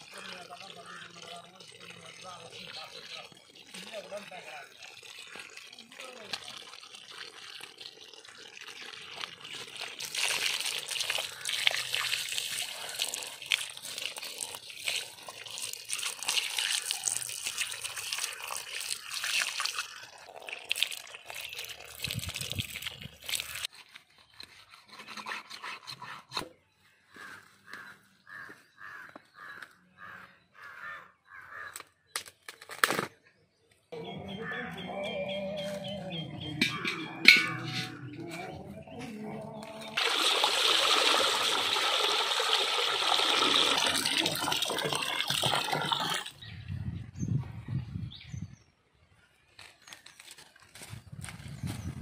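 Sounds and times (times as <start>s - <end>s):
water splashing and trickling: 0.0s - 26.4s, 35.6s - 46.5s.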